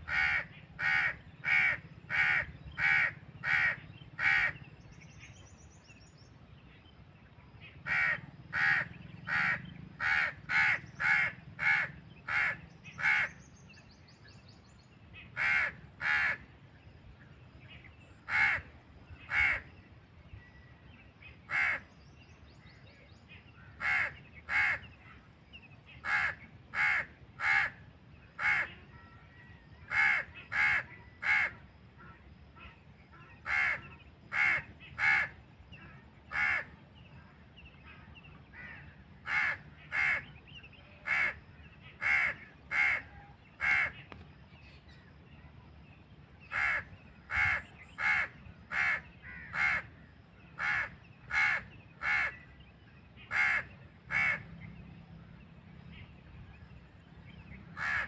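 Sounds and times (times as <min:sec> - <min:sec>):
crow cawing: 0:00.0 - 0:04.6, 0:07.8 - 0:13.4, 0:15.3 - 0:16.5, 0:18.2 - 0:18.7, 0:19.3 - 0:19.6, 0:21.5 - 0:21.8, 0:23.7 - 0:24.9, 0:26.0 - 0:27.8, 0:28.4 - 0:28.8, 0:29.8 - 0:31.6, 0:33.4 - 0:35.4, 0:36.3 - 0:36.7, 0:38.5 - 0:40.3, 0:41.0 - 0:41.4, 0:42.0 - 0:44.0, 0:46.5 - 0:50.0, 0:50.6 - 0:52.4, 0:53.3 - 0:54.4, 0:57.8 - 0:58.0.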